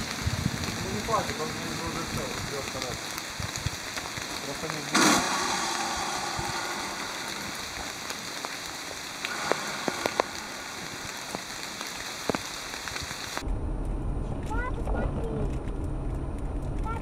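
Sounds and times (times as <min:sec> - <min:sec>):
outdoor noise hiss: 0:00.0 - 0:13.4.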